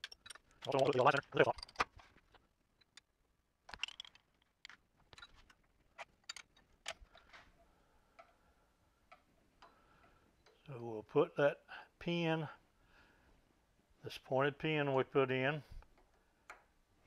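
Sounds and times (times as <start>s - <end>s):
small metal clicks and taps: 0.0s - 2.0s, 8.2s - 8.4s.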